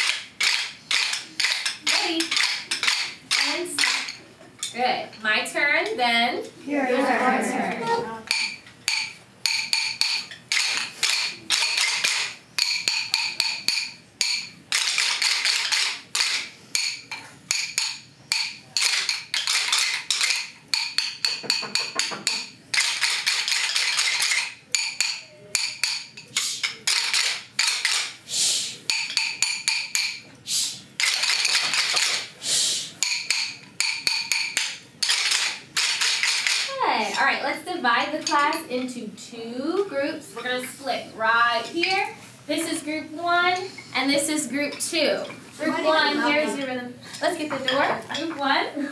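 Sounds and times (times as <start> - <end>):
rhythm sticks tapping: 0.0 - 4.2, 8.2 - 28.2, 28.8 - 36.9.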